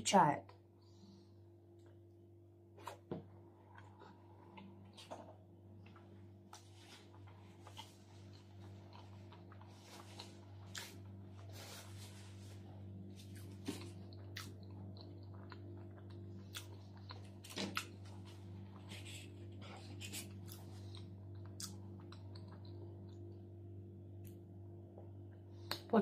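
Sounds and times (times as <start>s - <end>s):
low hum: 0.4s - 26.0s
person chewing food: 2.8s - 11.8s, 12.8s - 23.5s.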